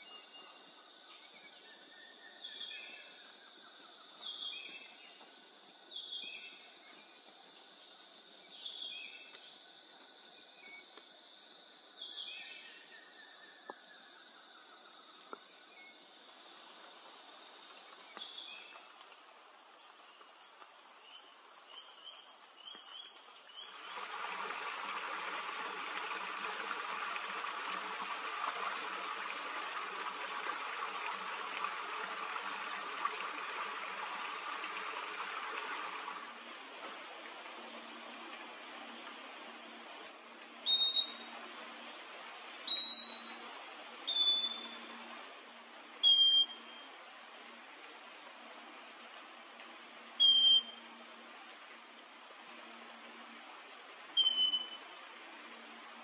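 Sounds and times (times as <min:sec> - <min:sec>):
insect chorus: 0:00.0 - 0:56.0
running water rushing: 0:16.0 - 0:39.5, 0:40.4 - 0:56.0.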